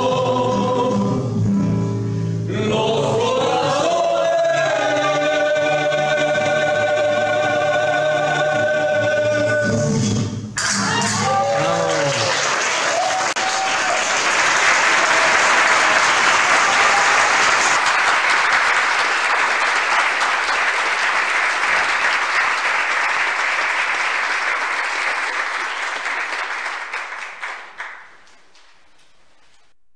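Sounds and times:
audience applauding: 0:10.6 - 0:28.8.

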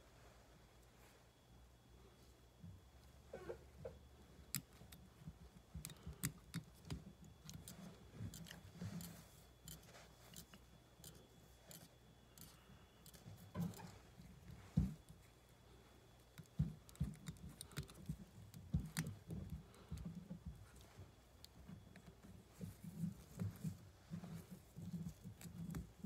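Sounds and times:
low steady hum: 0:00.0 - 0:26.0
small clicks and snips: 0:04.4 - 0:13.9, 0:16.3 - 0:22.8.

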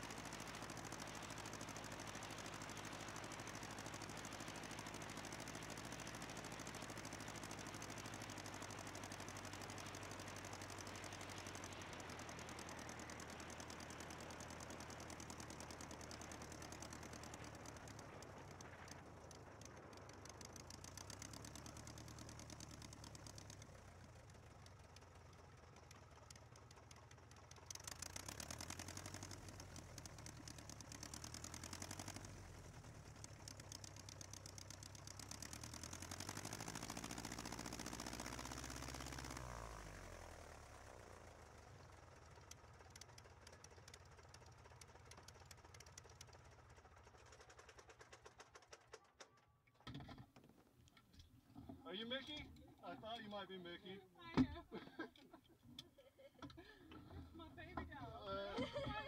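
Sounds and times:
small plane engine idling: 0:00.0 - 0:59.0.

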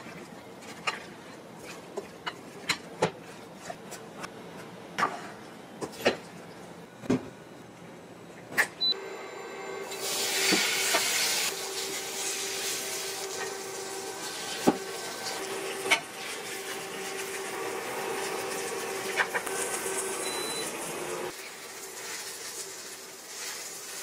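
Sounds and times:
batter sizzling in hot oil: 0:09.9 - 0:20.6, 0:21.2 - 0:24.0.

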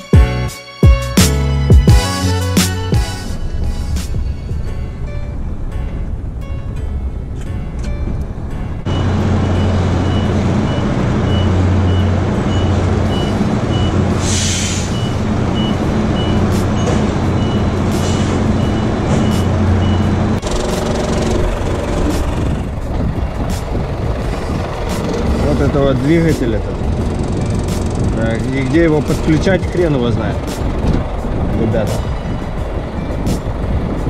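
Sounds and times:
diesel engine running: 0:00.0 - 0:34.0
reversing beeper: 0:08.9 - 0:20.4
compressed air hiss: 0:14.2 - 0:15.0.

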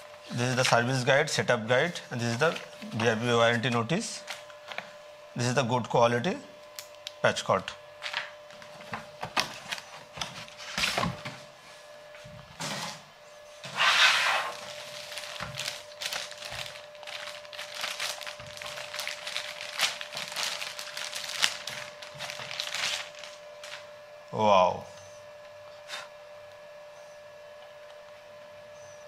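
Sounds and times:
plastic bag crinkling: 0:14.5 - 0:23.9.

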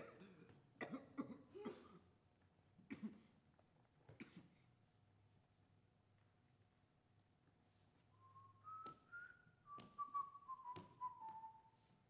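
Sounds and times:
faint whistled tune: 0:08.1 - 0:12.0.

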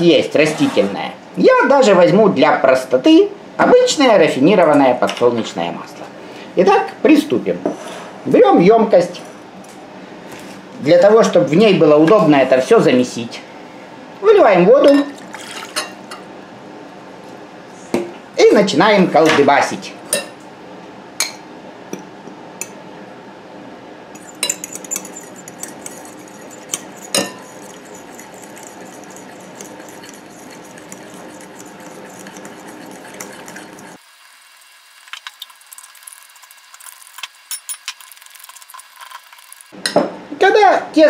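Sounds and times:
fork clinking against glass bowl: 0:24.2 - 0:34.0.

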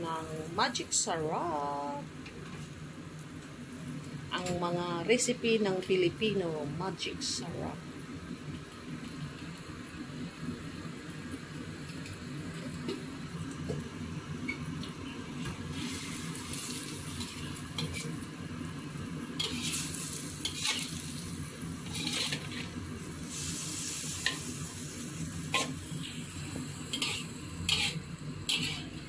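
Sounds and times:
food sizzling in a pan: 0:07.4 - 0:29.0
spatula scraping a pan: 0:19.4 - 0:21.0, 0:21.8 - 0:22.7, 0:26.9 - 0:29.0.

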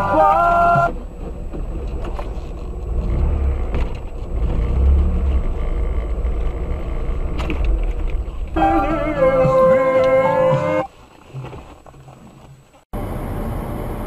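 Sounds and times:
car engine and road noise: 0:00.0 - 0:14.0
music: 0:08.6 - 0:10.9.

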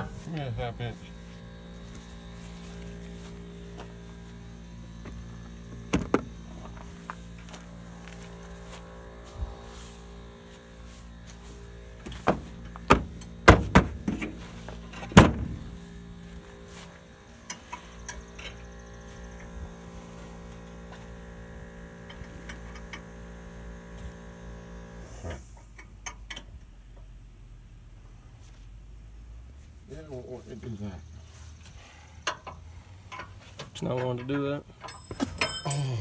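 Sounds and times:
machine hum: 0:00.0 - 0:25.5
sharp knocks: 0:12.2 - 0:14.2.

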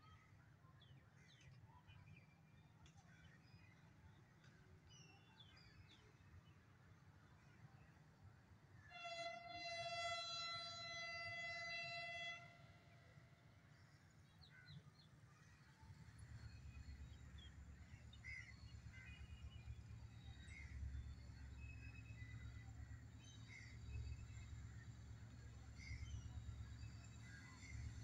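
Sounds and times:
distant locomotive horn blast: 0:08.9 - 0:13.6.

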